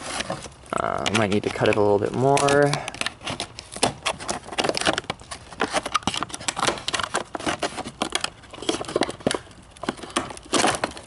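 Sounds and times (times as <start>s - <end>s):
plastic crinkling: 0.0s - 11.0s
scissors snipping plastic: 0.2s - 11.0s.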